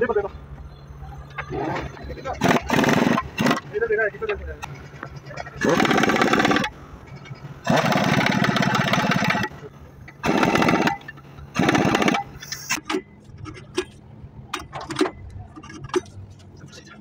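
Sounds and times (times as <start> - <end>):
pneumatic impact wrench hammering: 2.4 - 3.7, 5.4 - 16.1
light metal clicks and knocks: 12.4 - 16.9.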